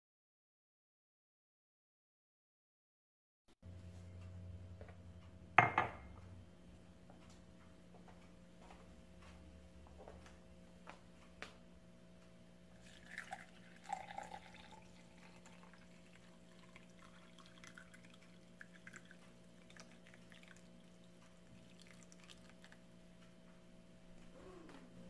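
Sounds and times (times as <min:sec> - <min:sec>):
faint steady hum: 0:03.7 - 0:25.0
water pouring into a glass: 0:12.7 - 0:22.8.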